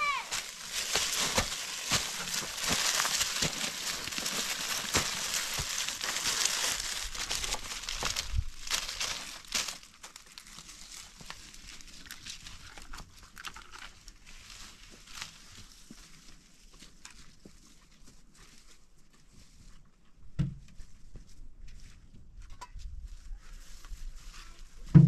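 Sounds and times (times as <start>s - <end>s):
branch dragged across dry leaves: 0.0s - 12.6s
footsteps crunching through leaves: 0.0s - 12.6s, 14.1s - 19.7s.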